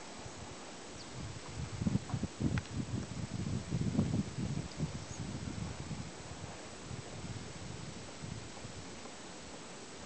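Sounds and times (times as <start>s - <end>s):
wind buffeting microphone: 0.0s - 9.7s.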